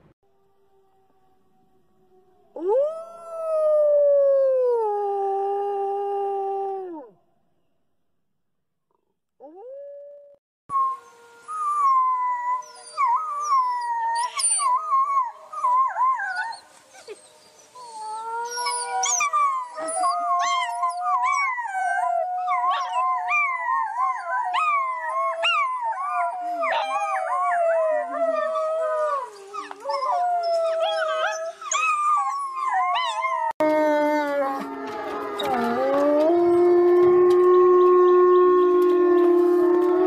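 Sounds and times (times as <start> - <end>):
wolf pups howling: 11.0 - 40.0.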